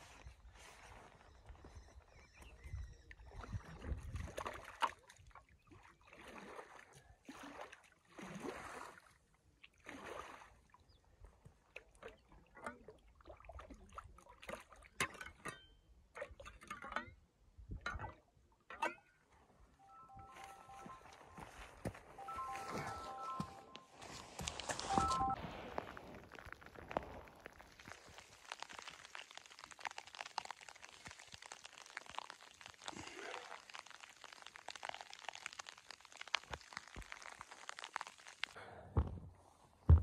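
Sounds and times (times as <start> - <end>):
water splashing and sloshing: 3.3 - 15.6, 19.8 - 38.6
water dripping: 19.8 - 23.8, 24.4 - 38.6
rain poncho rustling: 19.9 - 38.6.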